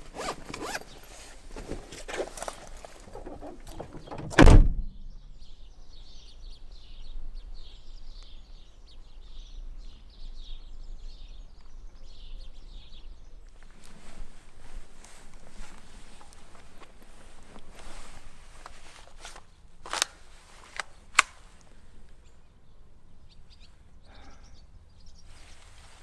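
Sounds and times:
low steady background noise: 0.0 - 26.0
small birds chirping: 0.0 - 26.0
car door slamming: 3.2 - 5.0.

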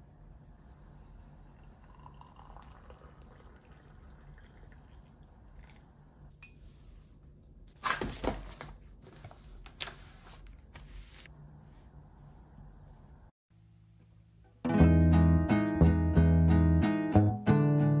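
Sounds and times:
low steady hum: 0.0 - 7.8
liquid dripping or trickling: 1.0 - 6.0.

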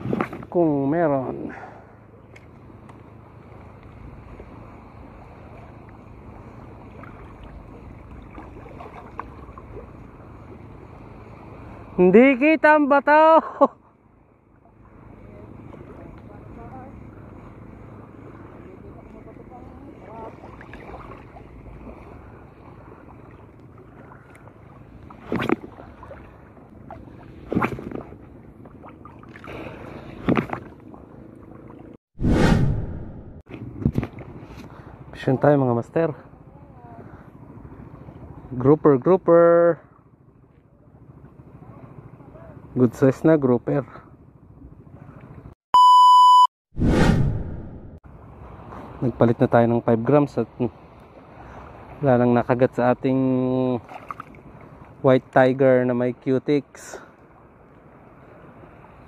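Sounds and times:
seawater lapping: 0.0 - 32.0, 33.6 - 45.6, 50.0 - 59.0
loud water splashes: 20.1 - 28.1.

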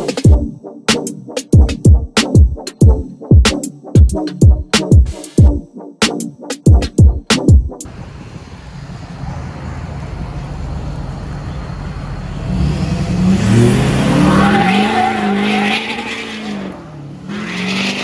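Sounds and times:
diesel truck engine accelerating: 7.8 - 18.0.

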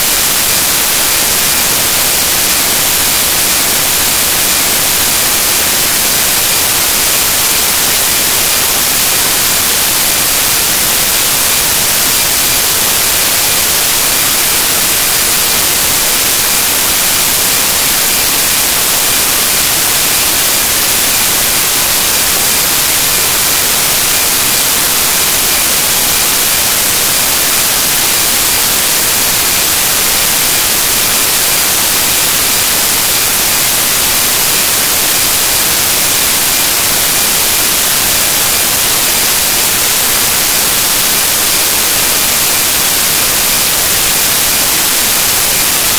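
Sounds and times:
loud static hiss: 0.0 - 45.9.

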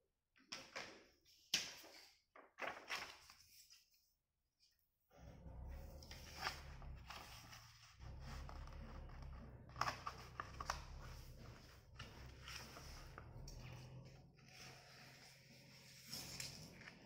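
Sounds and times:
paper rustling and crackling: 1.6 - 4.0, 6.1 - 13.8
low steady hum: 5.1 - 16.9.

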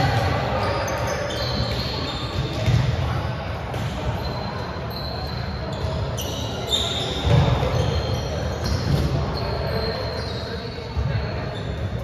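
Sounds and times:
faint players' voices: 0.0 - 12.0.

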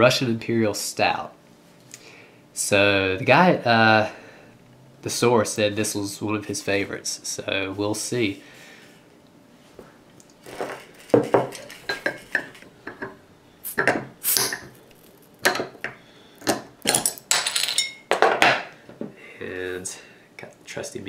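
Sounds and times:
bottle opener prying off cap: 13.7 - 14.8.

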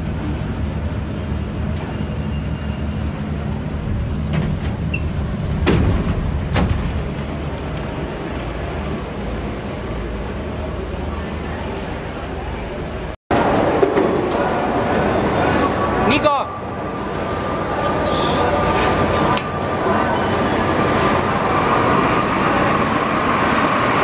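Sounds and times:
stopped train rumbling: 0.0 - 16.0, 16.6 - 24.0
sliding doors clunking open: 1.7 - 8.6.

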